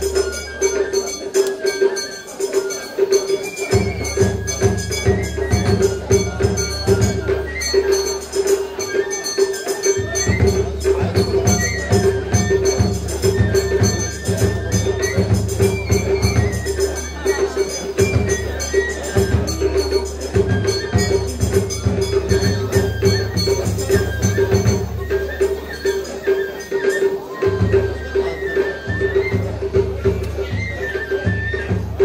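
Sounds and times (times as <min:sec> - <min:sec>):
low drum beats: 0:03.1 - 0:08.9, 0:09.9 - 0:26.5.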